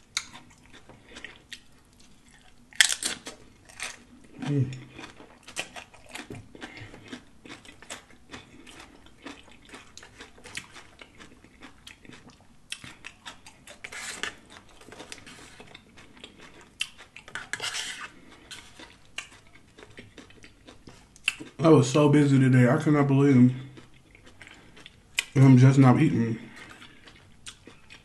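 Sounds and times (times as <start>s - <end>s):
chewing and crunching chips: 0.0s - 28.0s
fork scraping a platter: 17.3s - 19.0s.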